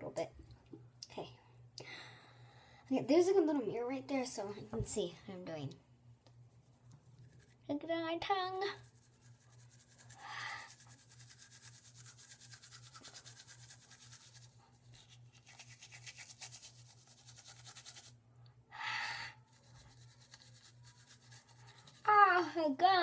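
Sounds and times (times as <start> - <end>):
toothbrush scrubbing teeth: 8.7 - 18.2, 19.3 - 22.3
louder toothbrush swishes: 8.8 - 18.2, 19.5 - 22.1.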